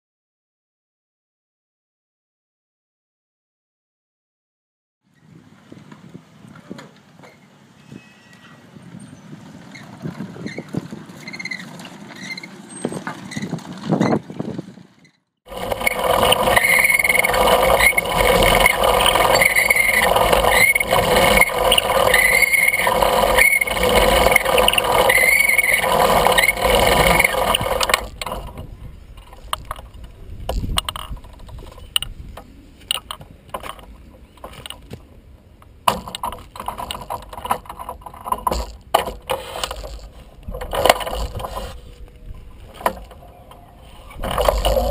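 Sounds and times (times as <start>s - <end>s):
short squeak: 7.2s - 14.2s, 15.0s - 28.2s, 38.5s - 44.9s
iron wheels rattling on rails: 9.2s - 32.1s, 32.9s - 44.9s
scattered clicks and knocks: 15.5s - 44.9s.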